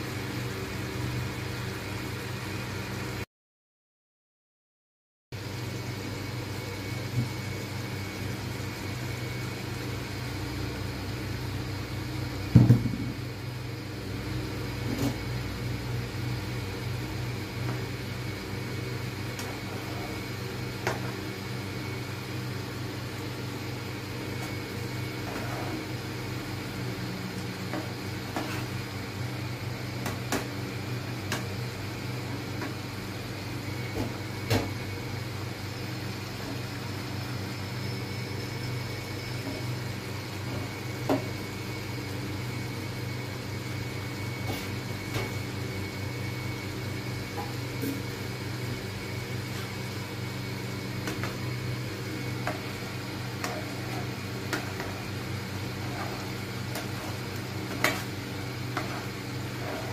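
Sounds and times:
induction cooktop hum: 0.0s - 3.3s, 5.3s - 59.9s
plastic spatula scraping a pan: 27.7s - 28.7s, 52.4s - 59.9s.

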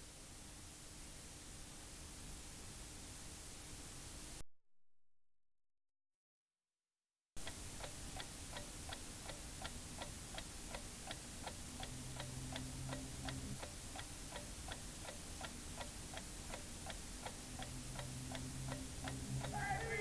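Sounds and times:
clock-like ticking: 7.4s - 20.0s.

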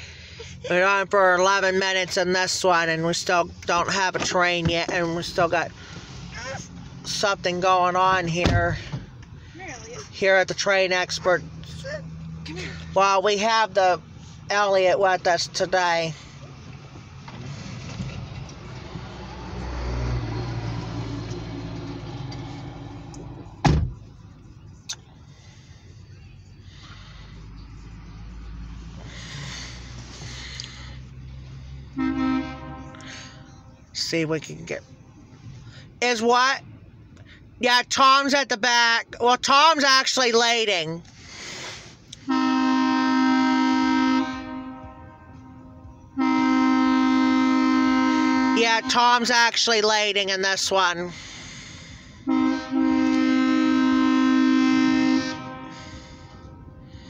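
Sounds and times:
truck engine rumble passing: 5.1s - 37.6s, 41.0s - 57.0s
sharp thump: 23.6s - 24.0s
locomotive air horn blasts: 31.5s - 33.9s, 42.2s - 49.5s, 51.9s - 57.0s.

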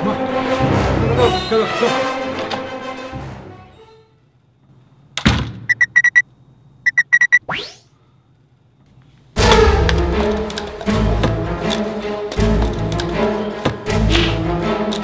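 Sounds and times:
door keypad beeping: 5.7s - 6.2s, 6.9s - 7.4s.

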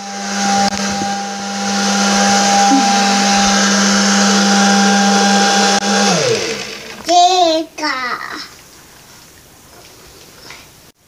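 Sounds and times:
bubble machine motor whirring: 0.0s - 7.2s.

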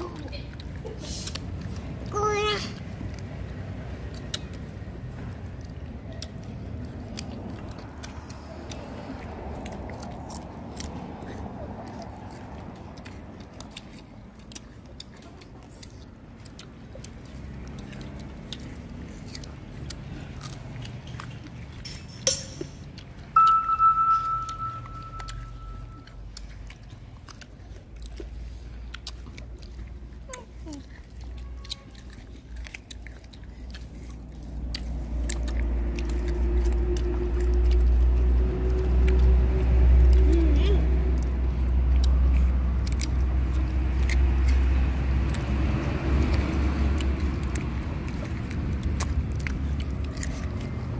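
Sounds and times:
motor vehicle rumbling: 0.0s - 50.9s
people biting and chewing fruit: 0.0s - 50.9s
wet mouth sounds: 0.0s - 50.9s
crisp clicks: 42.0s - 50.9s.

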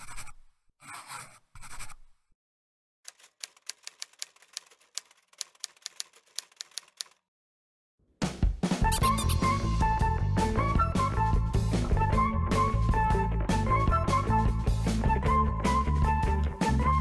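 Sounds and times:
typewriter clicking rapidly: 3.1s - 7.2s.

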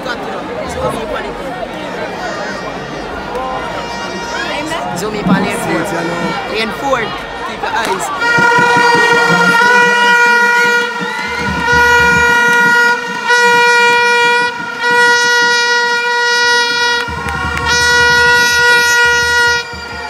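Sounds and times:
horn blasts: 4.6s - 20.0s.

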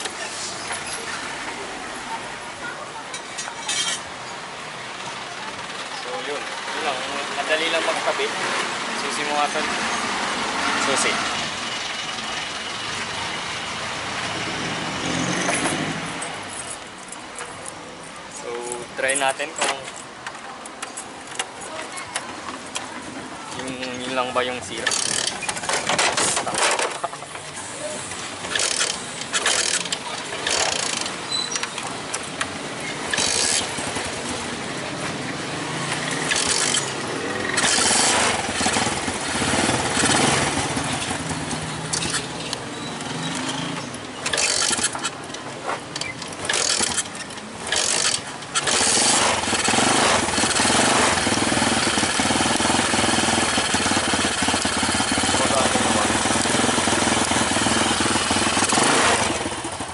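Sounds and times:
scooter engine running: 24.7s - 31.3s, 32.0s - 45.3s, 46.2s - 59.9s.

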